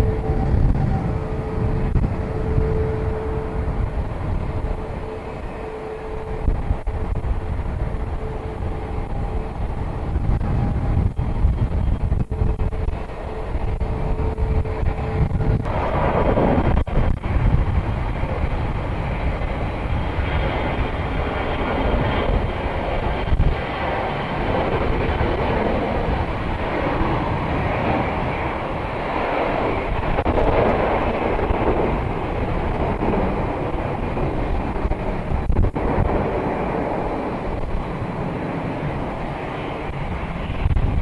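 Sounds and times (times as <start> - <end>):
jet engines running: 0.0 - 41.0
wind rumbling on microphone: 0.0 - 41.0.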